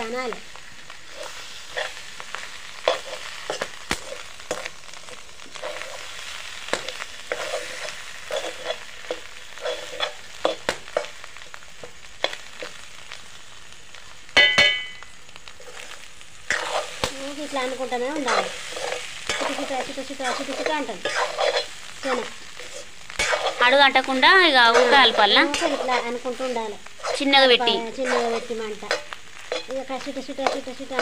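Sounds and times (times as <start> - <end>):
roe sizzling in oil: 0.0 - 31.0
steel spoon scraping pan: 6.7 - 11.1, 16.5 - 17.1, 18.1 - 24.0, 24.6 - 31.0
ringing metal clang: 14.4 - 15.0.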